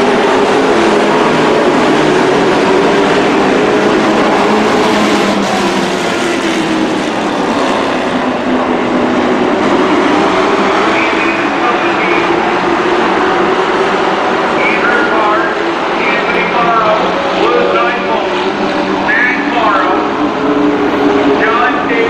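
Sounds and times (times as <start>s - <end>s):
race truck engines blaring: 0.0s - 22.0s.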